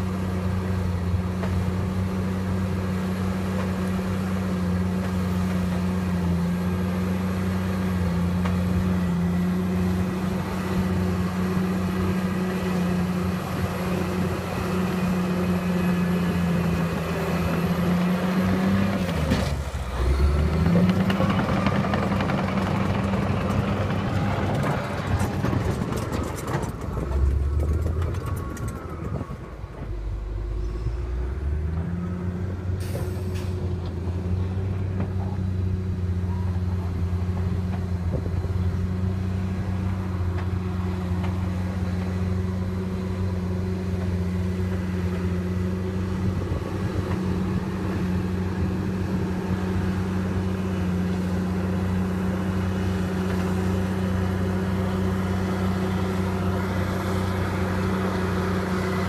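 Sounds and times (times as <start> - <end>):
heavy diesel engine running: 0.0 - 59.0.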